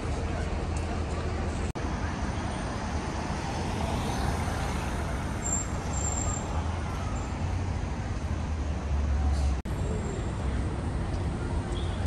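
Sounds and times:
cars driving past: 1.7 - 12.0.

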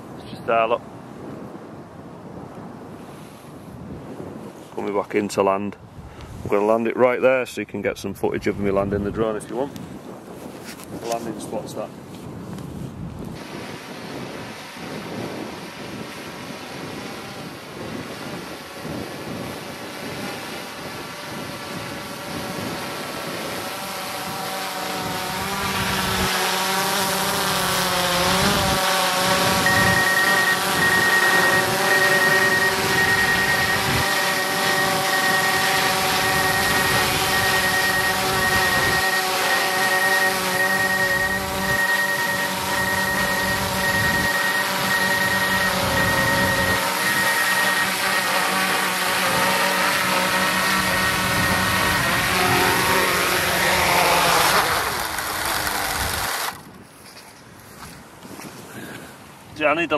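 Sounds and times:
drone propellers whining: 13.4 - 56.7.

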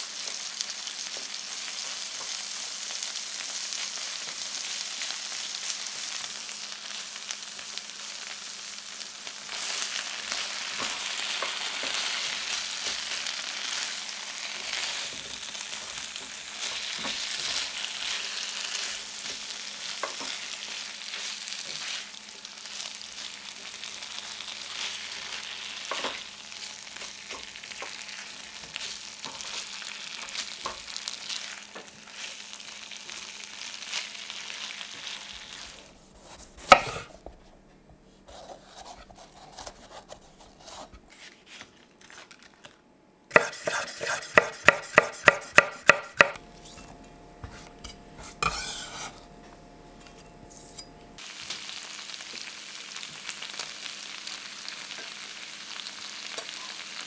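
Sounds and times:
food sizzling in frying pan: 0.0 - 35.9, 48.4 - 49.2, 51.2 - 57.0
knife slicing on wooden board: 43.3 - 46.3
spatula stirring: 43.3 - 46.8, 47.6 - 49.2.

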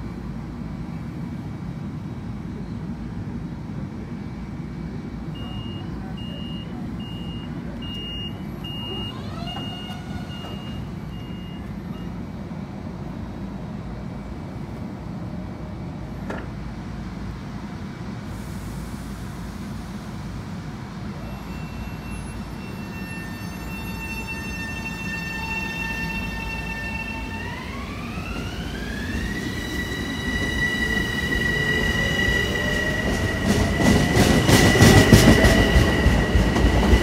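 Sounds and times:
train doors shutting: 5.3 - 12.2, 16.1 - 16.8, 21.0 - 37.0
door warning beeps: 5.4 - 12.2.

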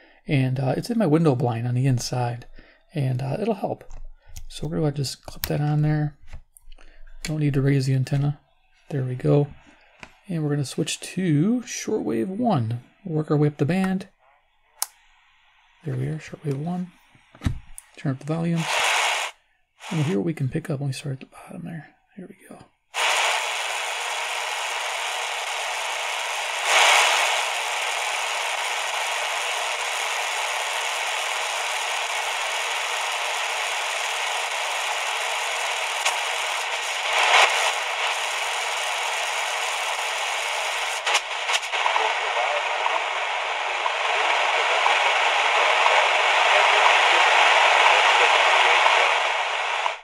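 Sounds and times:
radio crackles: 15.8 - 17.5, 18.2 - 20.2, 23.0 - 50.0
radio static hissing: 18.2 - 20.4, 23.0 - 50.0.

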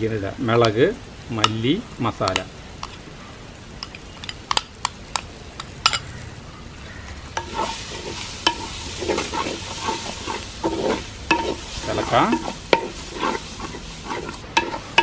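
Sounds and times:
frying sizzle: 0.0 - 15.0
wooden spatula scraping clay pot: 7.4 - 15.0.

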